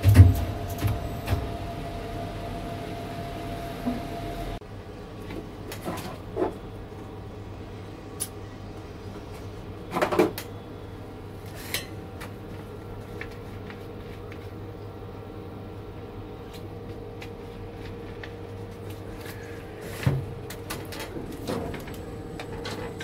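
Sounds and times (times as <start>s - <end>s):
crane machine hum: 0.0s - 4.6s, 19.8s - 23.0s.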